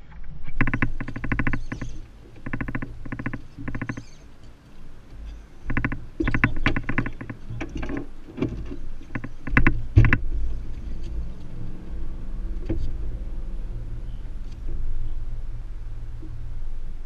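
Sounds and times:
steady low hum: 0.0s - 17.0s
fishing reel drag buzzing: 0.6s - 4.3s.

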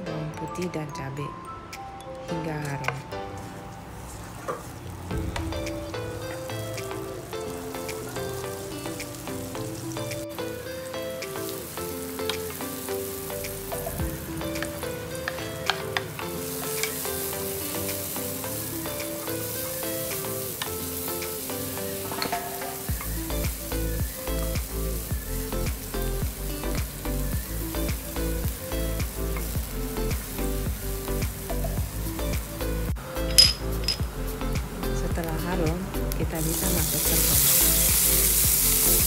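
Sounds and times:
background music: 0.0s - 39.0s
food sizzling in hot oil: 3.8s - 35.3s, 35.9s - 39.0s
steady beat: 5.1s - 8.2s, 22.9s - 35.8s.

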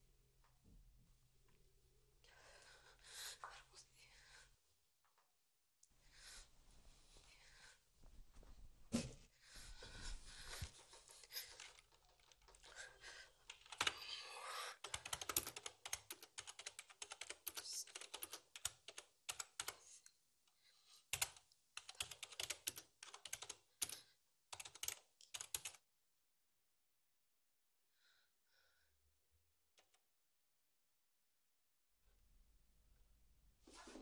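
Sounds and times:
fast typing on keyboard: 11.4s - 14.1s, 14.8s - 19.8s, 21.1s - 25.8s.

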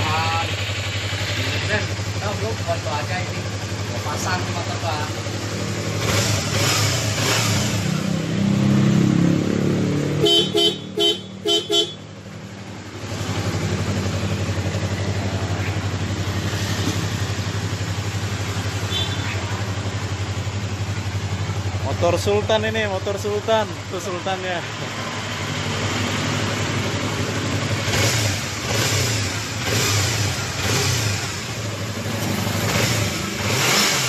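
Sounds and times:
motorcycle engine idling: 0.0s - 8.3s, 10.2s - 33.7s
motorcycle horn tooting: 10.2s - 12.1s, 18.8s - 19.6s.

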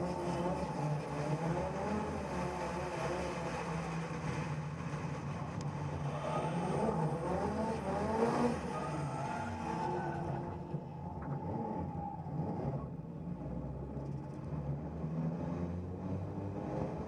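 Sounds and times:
car engine revving: 0.0s - 17.0s.

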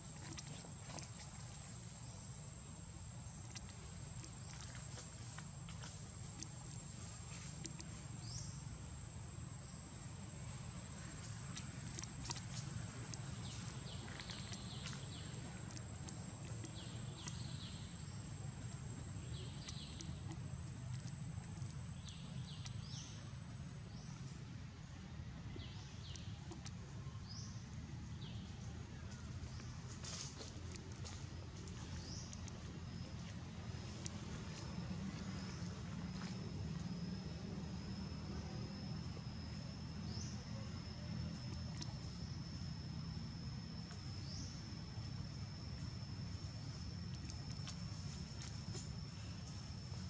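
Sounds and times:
steady low rumble: 0.0s - 50.0s
faint ticks: 3.4s - 8.1s, 11.0s - 17.9s.

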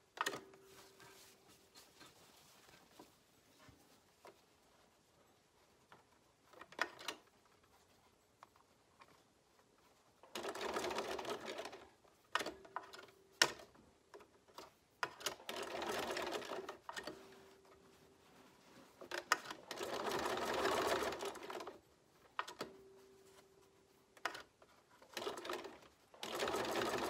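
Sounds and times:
sewing machine stitching: 10.3s - 13.6s, 15.2s - 17.2s, 19.2s - 21.8s, 24.2s - 27.0s.

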